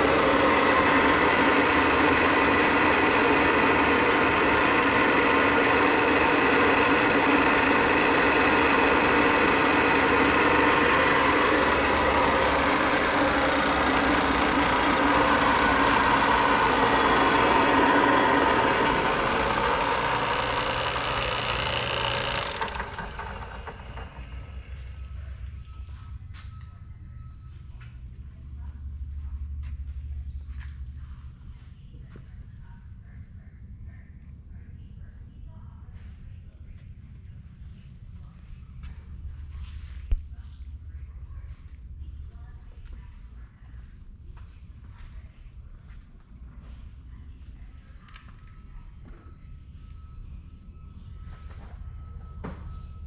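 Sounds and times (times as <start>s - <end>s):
milling machine motor humming: 0.0s - 25.8s.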